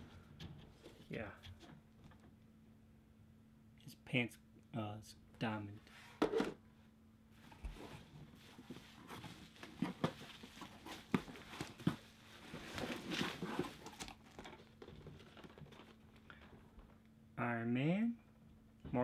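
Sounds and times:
cardboard rustling and scraping: 7.4 - 16.7.

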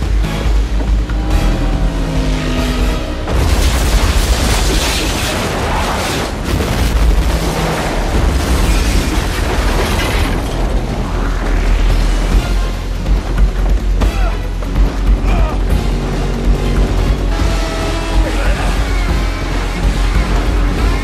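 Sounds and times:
dramatic music: 0.0 - 21.0
speedboats racing over water: 10.4 - 21.0.

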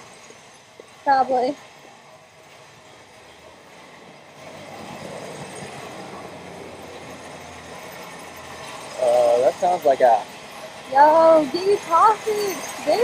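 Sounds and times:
vehicle passing on road: 2.8 - 13.0.

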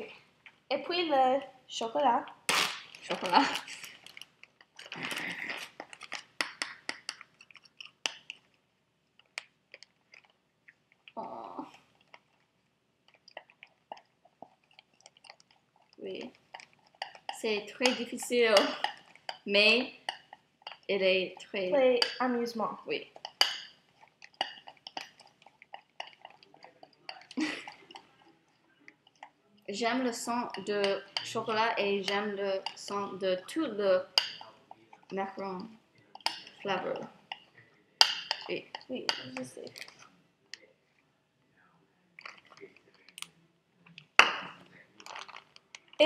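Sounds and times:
plastic bag crinkling: 2.4 - 8.0, 44.0 - 46.0.

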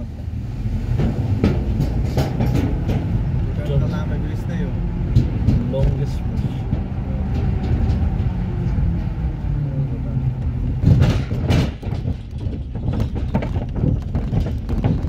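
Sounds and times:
tyres rumbling on steel deck: 0.0 - 15.0
wooden planks rattling under wheels: 0.9 - 4.4, 10.5 - 15.0
heavy thumps: 10.6 - 15.0.

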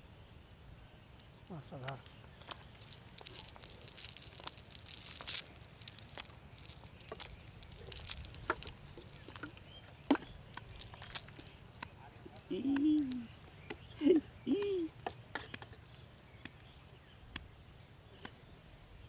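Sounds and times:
net crackling and rustling on earth: 2.2 - 16.8.

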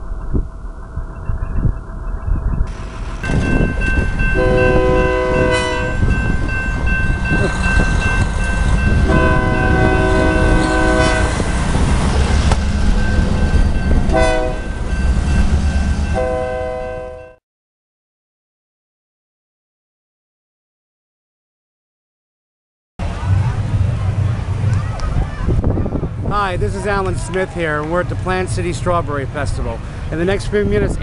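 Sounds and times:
low rumble of train: 0.0 - 17.4, 23.0 - 31.0
railroad crossing bell ringing: 2.7 - 11.8, 12.5 - 17.4
locomotive air horn: 4.3 - 6.1, 9.0 - 11.5, 14.1 - 14.7, 16.1 - 17.4.

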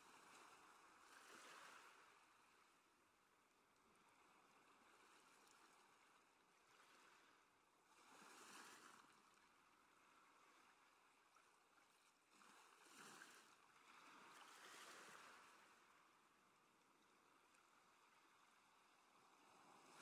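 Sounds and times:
sea water rushing along hulls: 17.3 - 20.0.

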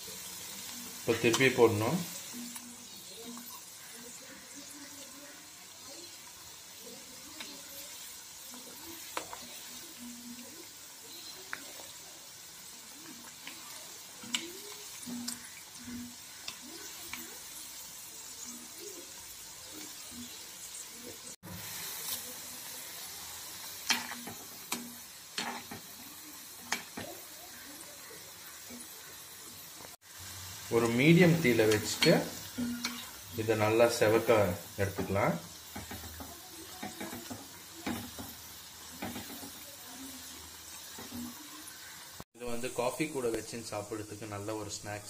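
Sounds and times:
food sizzling in hot oil: 0.0 - 45.0
metal spoon knocking pan: 34.9 - 38.4.

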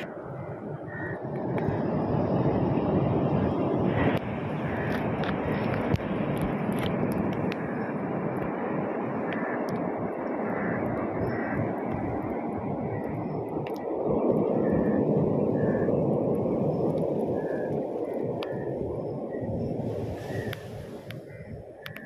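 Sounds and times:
underwater rushing water: 1.1 - 21.3
faint ticks: 21.8 - 22.0.

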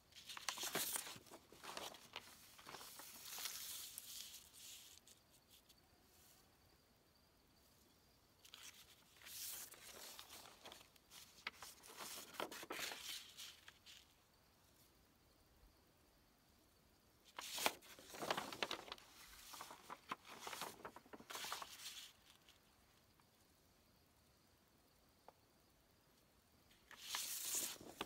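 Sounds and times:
paper rustling and crinkling: 0.1 - 5.8, 8.4 - 14.1, 17.3 - 22.6, 26.7 - 28.0.

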